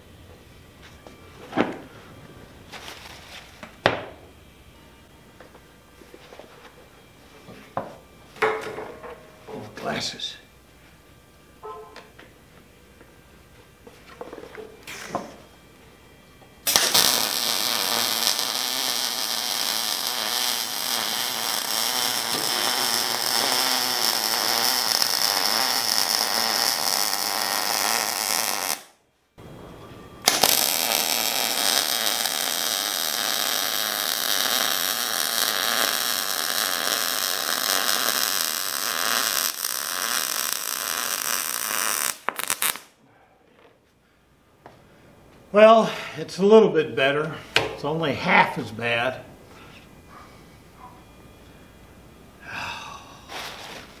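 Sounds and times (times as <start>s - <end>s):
welding arc buzzing: 5.4s - 43.0s.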